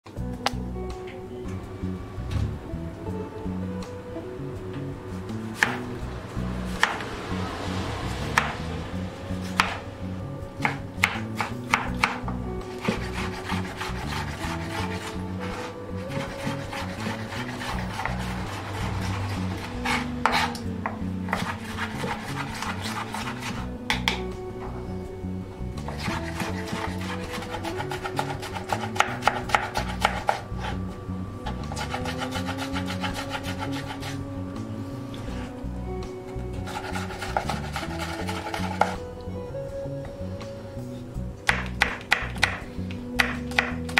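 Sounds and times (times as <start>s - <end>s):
soft background music: 0.0s - 43.9s
knife chopping on cutting board: 5.6s - 5.8s, 6.8s - 7.0s, 8.4s - 8.6s, 9.6s - 9.8s, 10.6s - 18.2s, 19.8s - 20.6s, 21.3s - 24.2s, 25.9s - 30.8s, 36.7s - 39.0s, 41.5s - 42.6s, 43.2s - 43.9s.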